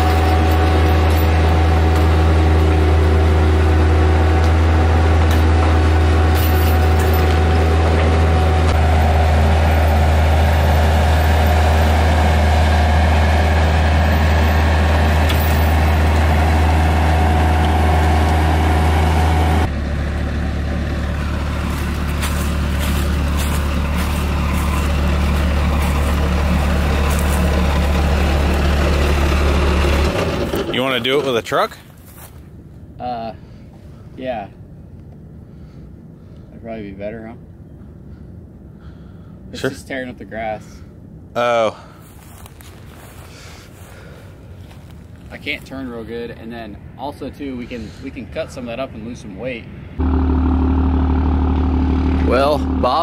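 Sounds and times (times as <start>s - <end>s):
diesel engine running under load: 0.0s - 32.3s, 40.9s - 45.3s, 49.7s - 53.0s.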